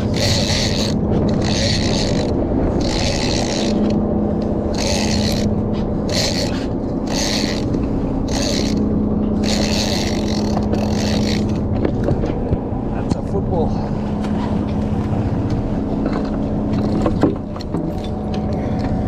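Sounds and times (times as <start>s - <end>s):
fishing reel rasping whirr: 0.0s - 4.0s, 4.6s - 11.7s
low boat engine hum: 0.0s - 19.0s.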